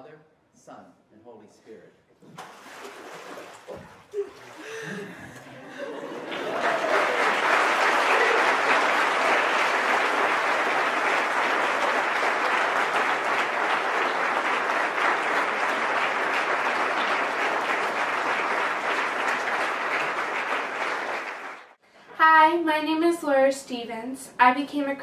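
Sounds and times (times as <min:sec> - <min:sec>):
congregation applauding: 0:04.6 - 0:21.8.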